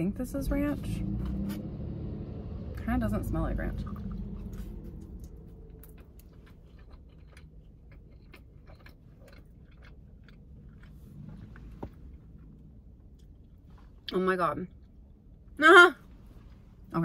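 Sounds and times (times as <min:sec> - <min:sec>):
person chewing: 0:03.8 - 0:13.7.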